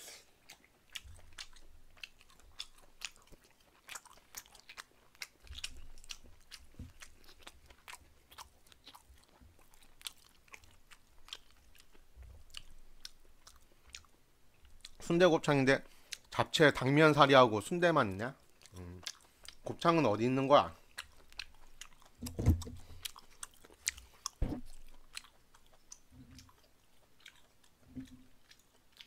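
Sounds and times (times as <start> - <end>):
chewing and mouth smacking: 0.4 - 15.1, 15.8 - 16.4, 18.3 - 19.9, 20.6 - 29.0
soft low thuds: 22.2 - 23.0, 24.4 - 24.9.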